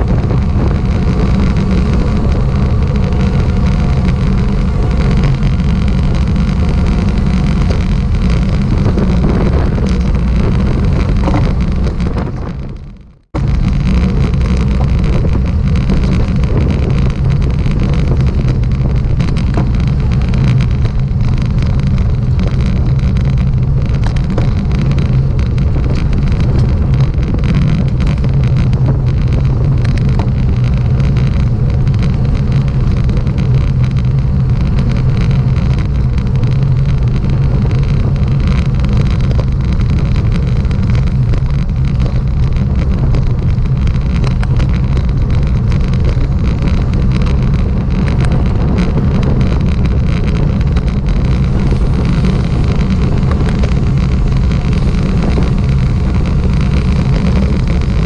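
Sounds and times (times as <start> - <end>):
road noise drone: 0.0 - 58.0
wind buffeting microphone: 0.0 - 58.0.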